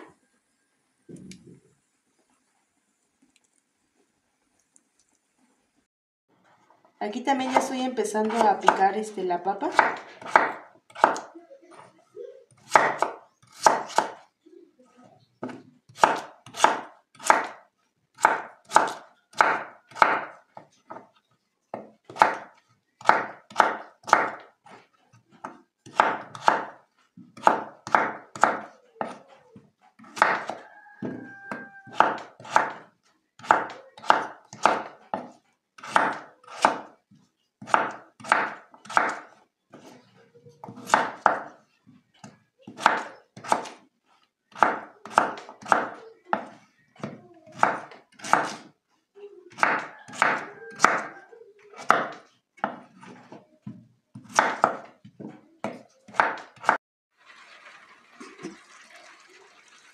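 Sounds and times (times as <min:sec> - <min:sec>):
knife knocking on wooden board: 0:30.2 - 0:32.8.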